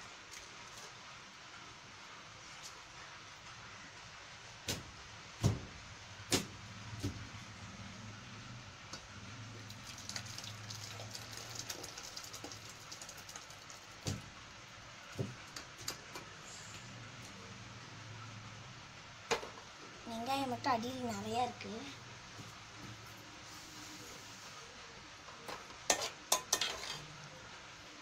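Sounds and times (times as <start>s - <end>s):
thick liquid pouring and splattering: 9.6s - 14.4s
metal pots clanking: 25.5s - 27.1s.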